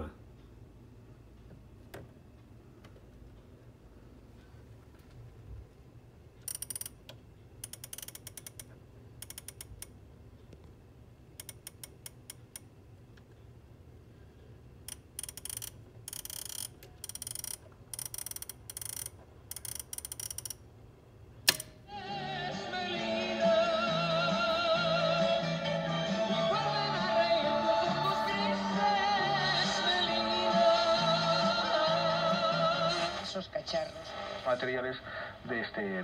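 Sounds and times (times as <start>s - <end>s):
flip clock leaves clicking: 6.4s - 10.0s, 11.4s - 12.7s, 14.9s - 20.6s, 21.4s - 21.8s
sharp click: 21.4s - 21.8s
radio music with singing: 21.9s - 36.0s.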